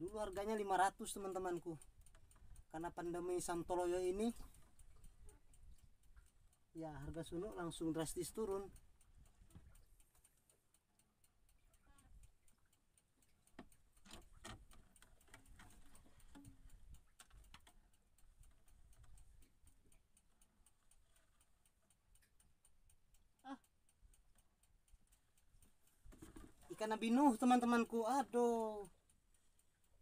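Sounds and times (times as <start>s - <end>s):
faint even ticking: 0.0s - 30.0s
fishing line rustling and scraping: 13.5s - 17.8s, 25.9s - 26.8s.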